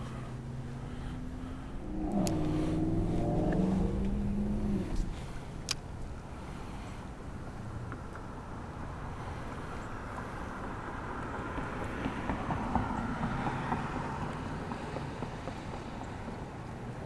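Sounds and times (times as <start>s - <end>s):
steady low rumble: 0.0s - 11.2s
vehicle crossing bridge: 0.0s - 17.0s.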